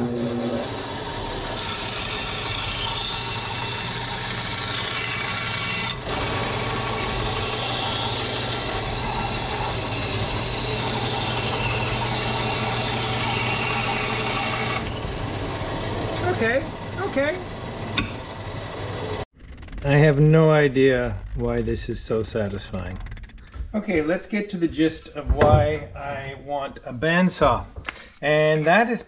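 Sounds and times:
saw blade cutting wood: 0:00.0 - 0:15.4
band saw motor hum: 0:00.0 - 0:20.1.

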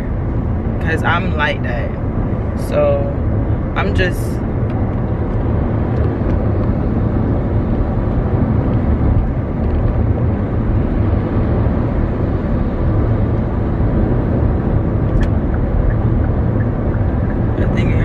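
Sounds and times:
car cabin road and engine noise: 0:00.0 - 0:18.0.

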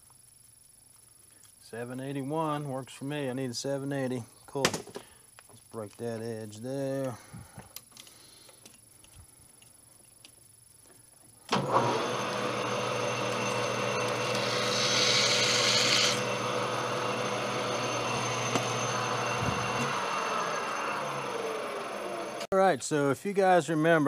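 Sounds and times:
lathe motor and gear hum: 0:11.5 - 0:22.5.

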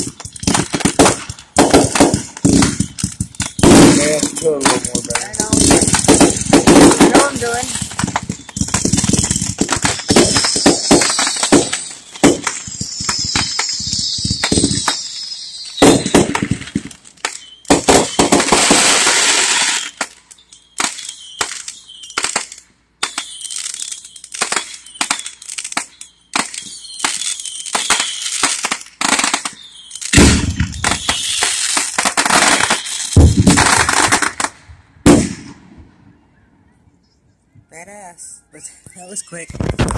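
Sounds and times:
heavy firework boom: 0:00.0 - 0:14.8, 0:15.8 - 0:16.9, 0:30.1 - 0:31.1, 0:33.2 - 0:33.7, 0:35.0 - 0:35.9
fireworks crackling and hissing: 0:00.0 - 0:36.2, 0:37.8 - 0:39.9
fireworks bangs: 0:00.0 - 0:36.4, 0:39.0 - 0:39.9.

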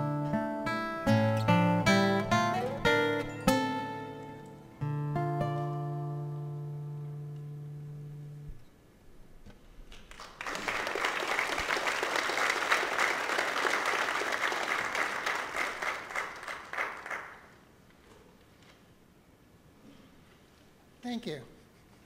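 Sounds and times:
congregation applauding: 0:10.0 - 0:17.6.

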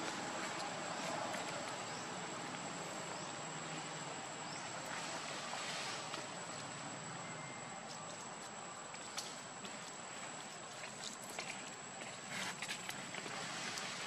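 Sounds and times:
outdoor background hiss: 0:00.0 - 0:14.0
faint rising chirps: 0:07.1 - 0:08.2.

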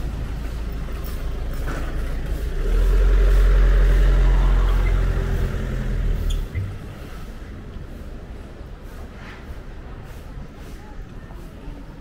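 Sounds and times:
vehicle engine running: 0:00.0 - 0:06.6.

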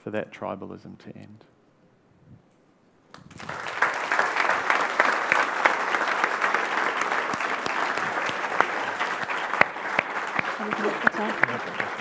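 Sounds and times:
audience applauding: 0:03.1 - 0:12.0.

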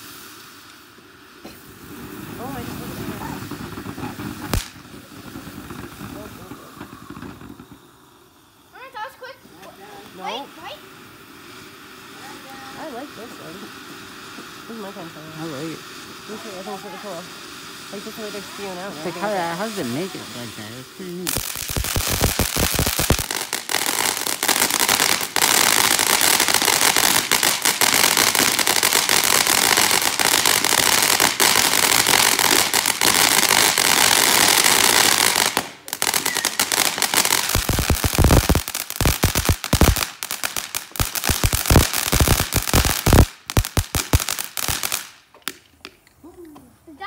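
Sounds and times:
firework fountain hissing: 0:00.0 - 0:46.0
sharp crackling pops: 0:01.4 - 0:10.8, 0:20.5 - 0:46.7.

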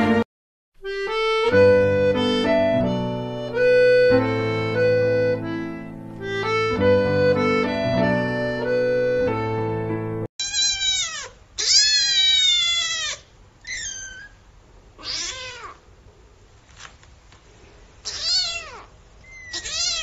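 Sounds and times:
accordion music: 0:00.0 - 0:00.2, 0:00.8 - 0:10.3
kittens meowing: 0:10.4 - 0:14.4, 0:15.0 - 0:15.9, 0:18.0 - 0:20.0.

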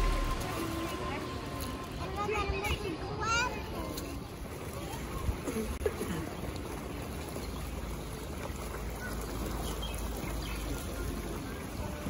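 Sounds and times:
low steady rumble: 0:00.0 - 0:03.8
water trickling and lapping: 0:00.0 - 0:12.0.

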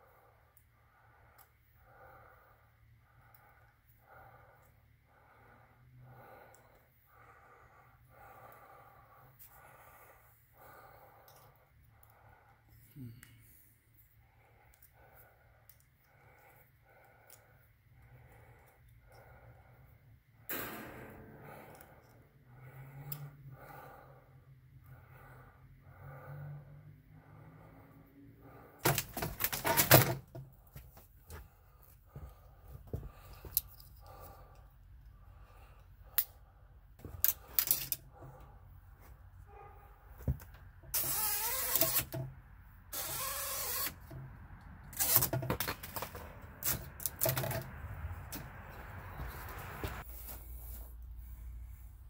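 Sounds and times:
faint steady hum: 0:00.0 - 0:28.8.

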